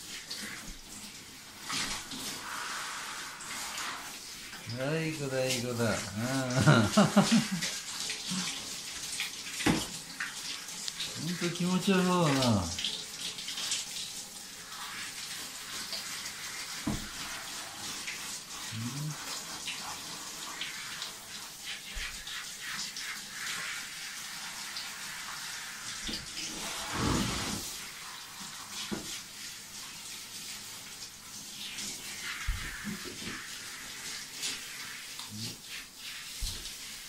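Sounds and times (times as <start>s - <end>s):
shower head spraying water: 1.6s - 29.6s.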